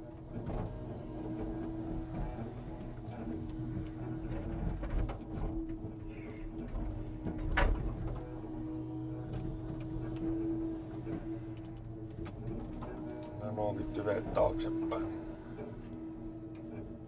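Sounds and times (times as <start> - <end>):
loading crane humming: 6.6 - 17.0.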